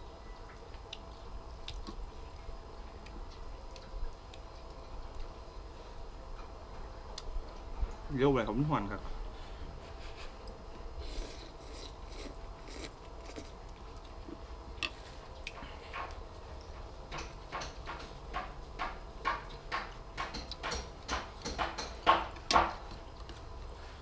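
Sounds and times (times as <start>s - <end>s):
chewing and mouth smacks: 0.5s - 2.0s
slurping noodles: 11.0s - 13.6s.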